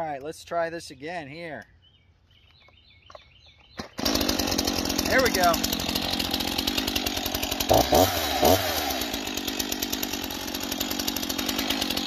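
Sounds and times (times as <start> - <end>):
chainsaw revving and running: 3.8 - 12.0.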